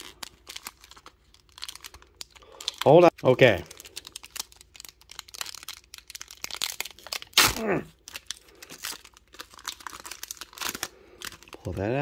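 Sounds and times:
foil pack crinkling: 0.0s - 12.0s.

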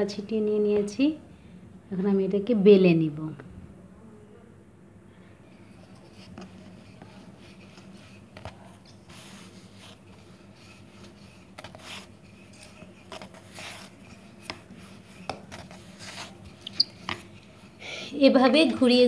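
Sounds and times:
faint steady hum: 0.0s - 19.0s
rolling pin rolling dough: 5.5s - 19.0s.

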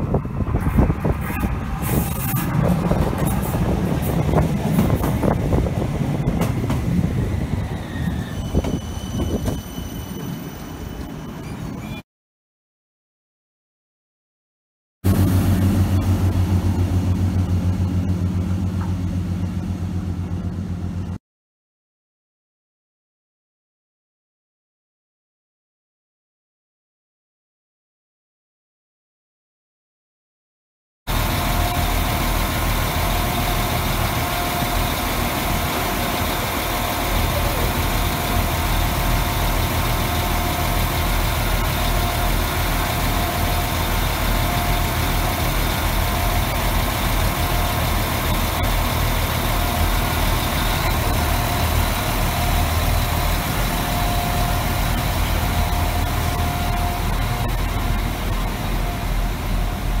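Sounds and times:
train engine rumble idling: 0.0s - 11.8s, 15.1s - 21.2s, 31.1s - 60.0s
constant whine: 31.1s - 60.0s.

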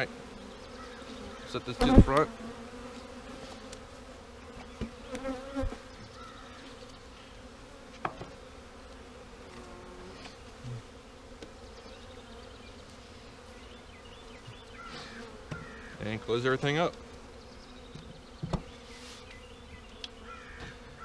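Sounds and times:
bees buzzing: 0.0s - 21.0s
wooden knocks of hive boxes: 1.8s - 2.3s, 4.5s - 5.8s, 8.0s - 8.4s, 14.4s - 16.1s, 17.9s - 18.8s.

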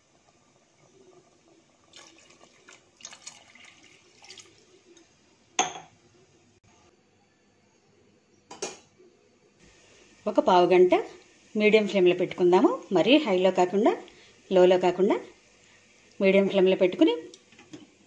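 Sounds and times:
water pouring into a pot: 0.8s - 5.2s.

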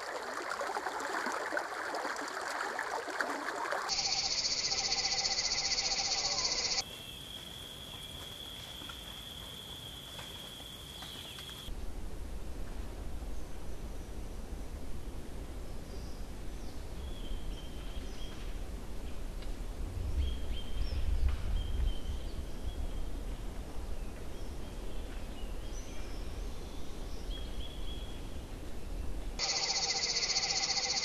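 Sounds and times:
faint high bird chirps: 3.9s - 7.2s, 29.4s - 31.0s.

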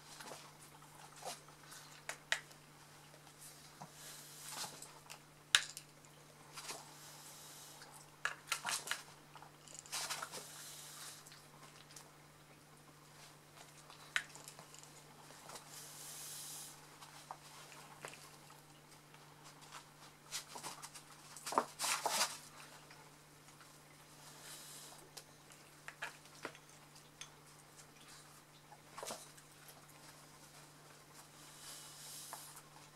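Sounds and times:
puppy scuffling: 16.9s - 23.8s.

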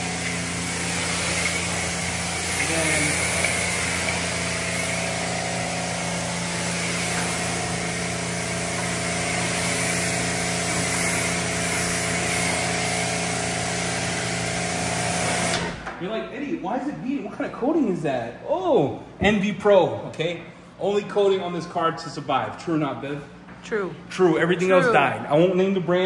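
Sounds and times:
water spray hissing on car: 0.0s - 15.6s
pressure washer motor humming: 0.0s - 15.8s.

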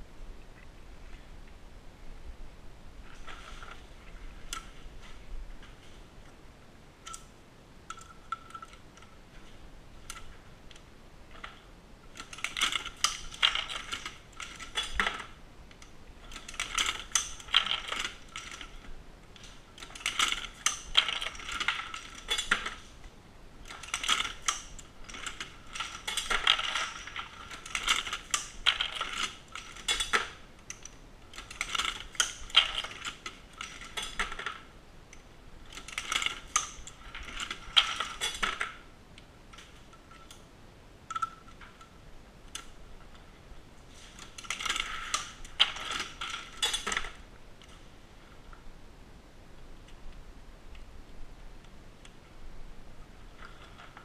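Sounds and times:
reloading press metallic clattering: 11.4s - 15.4s, 16.2s - 23.0s, 23.6s - 34.6s, 35.6s - 38.8s, 44.0s - 47.2s.

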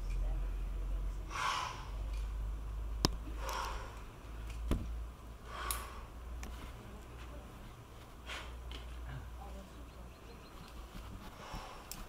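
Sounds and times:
steady low rumble: 0.0s - 12.0s
hissing exhales of effort: 1.3s - 2.0s.

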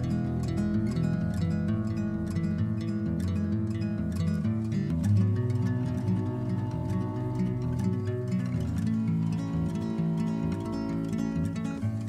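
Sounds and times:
plucked string background music: 0.0s - 12.0s.

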